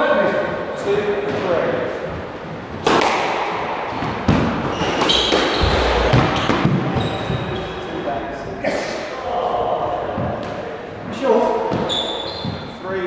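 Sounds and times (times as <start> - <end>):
squash ball hits: 2.8 - 7.6
shoe squeaks on wooden floor: 4.6 - 5.7, 11.8 - 12.7.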